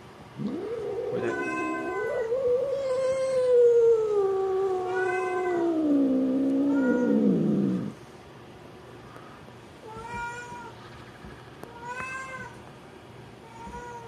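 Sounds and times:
cat yowling: 0.4 - 7.9.

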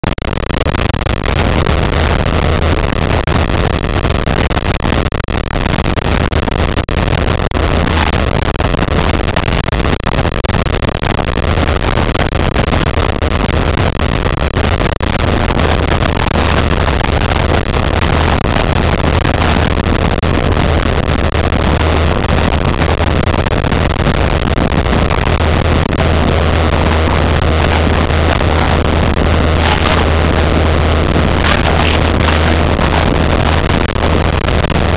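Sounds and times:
boat motor humming: 25.4 - 34.9
water rushing: 26.9 - 33.8.

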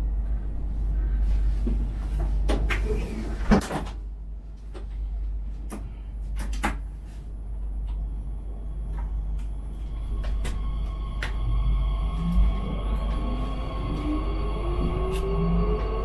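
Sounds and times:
train equipment humming: 4.5 - 16.0.

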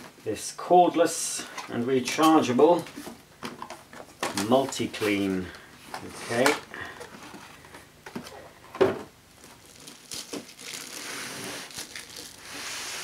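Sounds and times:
plastic bag crinkling: 9.3 - 13.0.

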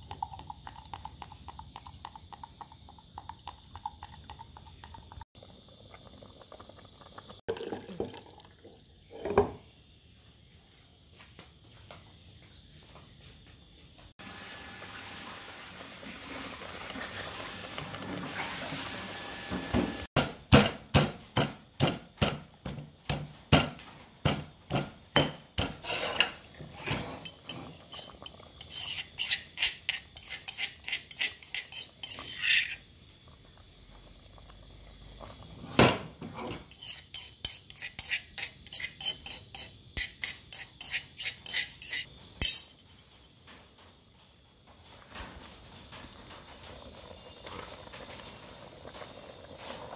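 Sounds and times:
metal utensil scraping cooking pot: 24.7 - 32.8, 36.3 - 42.1.

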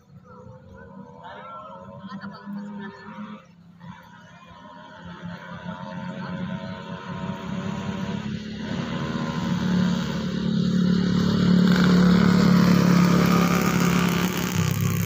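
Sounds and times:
motorcycle engine passing: 5.0 - 15.0.

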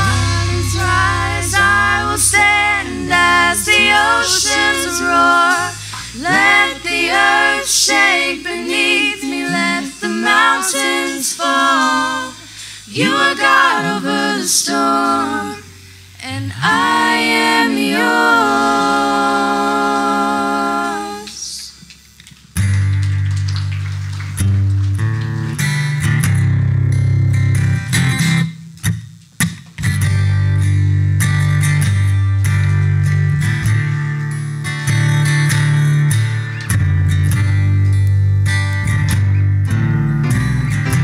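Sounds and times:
low bass note: 0.0 - 7.7
woman singing lead: 0.0 - 21.7
voices singing worship song: 0.0 - 21.8.

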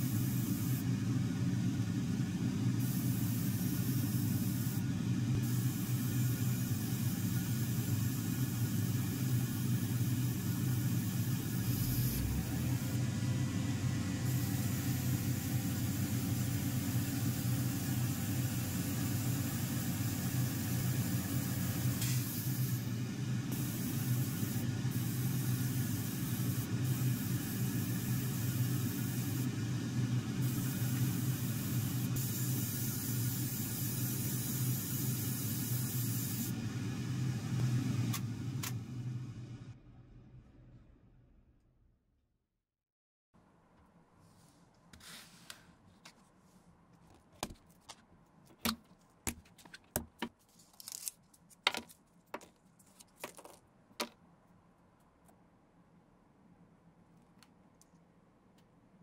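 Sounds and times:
spray gun hissing: 0.0 - 0.8, 2.8 - 13.0, 14.1 - 29.5, 30.3 - 36.6
constant low hum: 0.0 - 41.7.

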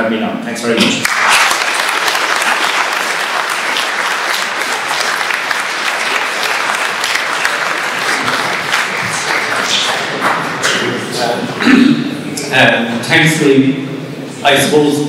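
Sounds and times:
audience applauding: 0.9 - 11.0.

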